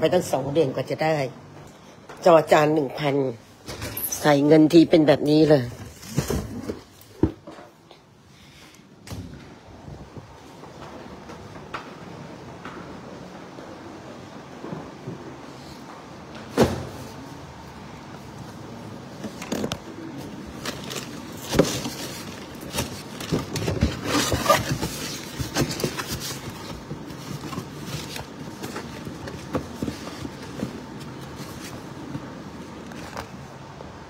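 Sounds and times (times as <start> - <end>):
cardboard rustling: 19.2 - 33.5
cardboard knocks and scrapes: 20.8 - 33.2.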